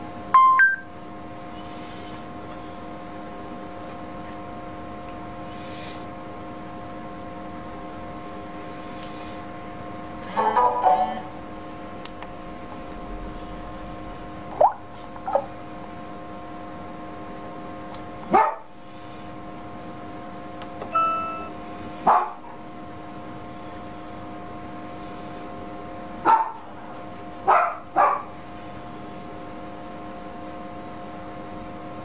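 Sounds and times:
dog barking: 18.3 - 18.7, 22.0 - 22.6, 26.2 - 26.6, 27.5 - 28.3.

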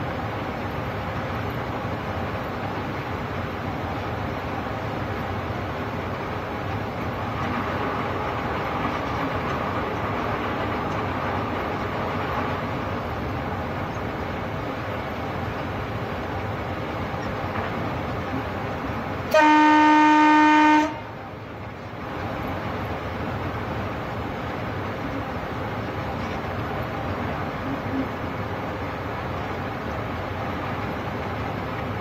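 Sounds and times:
train rumbling: 0.0 - 32.0
train horn blast: 19.3 - 21.1.

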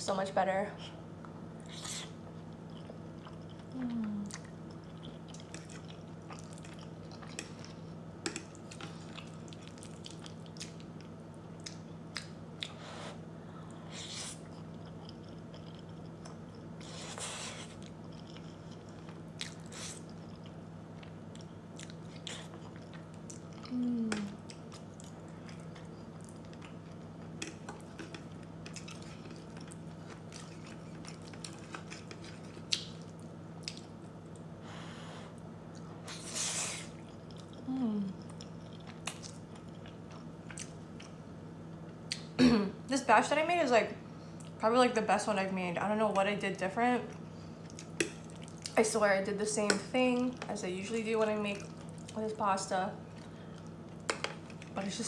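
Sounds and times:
steady low hum: 0.0 - 55.0
chewing with lip smacks: 1.6 - 12.8, 13.7 - 34.5, 36.8 - 41.2, 47.1 - 48.8, 51.5 - 52.2
person humming: 3.8 - 4.3, 23.7 - 24.4, 37.6 - 38.2.

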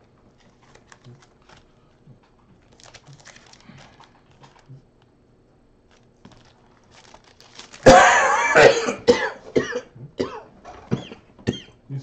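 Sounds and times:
man coughing: 7.8 - 11.8.

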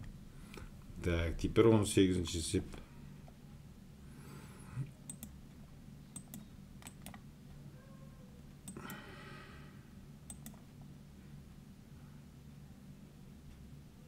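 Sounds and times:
low steady hum: 0.0 - 14.0
computer mouse clicks: 5.1 - 5.4, 6.1 - 7.2, 10.3 - 10.6.

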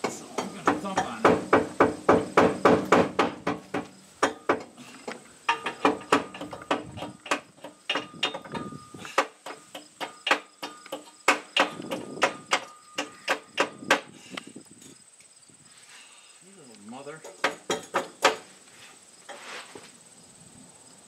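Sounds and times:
hammer tapping on steel: 0.0 - 14.1.

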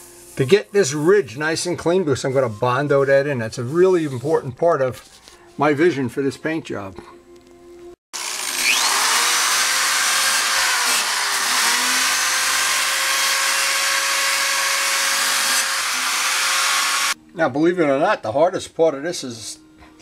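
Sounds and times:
rotary tool grinding metal: 8.2 - 17.2.

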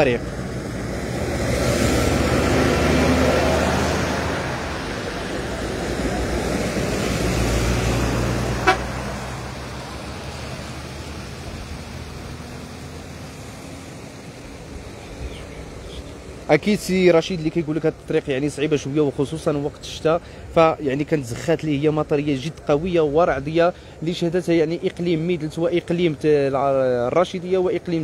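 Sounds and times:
tyres splashing through water: 0.0 - 16.6
diesel lorry engine running: 0.0 - 17.0.

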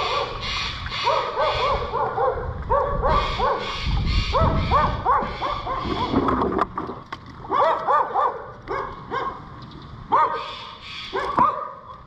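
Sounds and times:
animal yelping: 0.0 - 2.1, 2.9 - 6.3.

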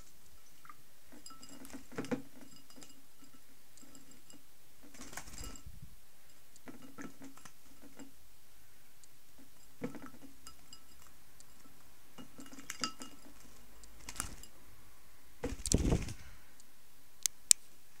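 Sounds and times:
light clinks against glass: 1.2 - 4.4, 12.2 - 13.4
bird wings flapping: 4.9 - 5.6, 15.5 - 16.3.

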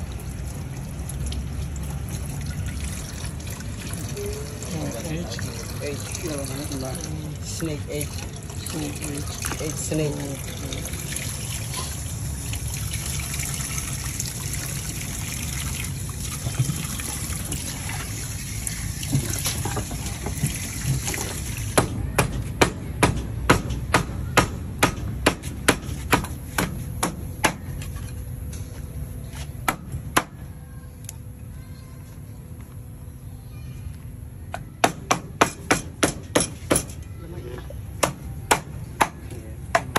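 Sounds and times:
tap water running into sink: 0.0 - 21.8.

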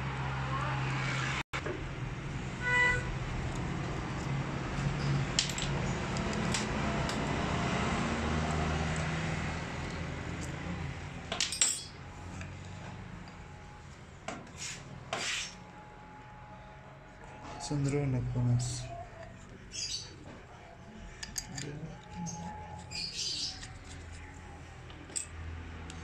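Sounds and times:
hand tool clicking on metal parts: 21.1 - 22.2.

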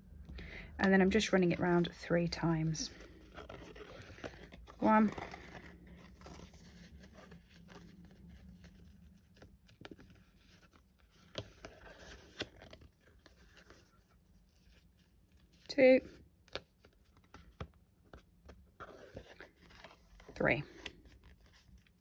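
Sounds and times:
rustling of cardstock and twine: 0.9 - 22.0.

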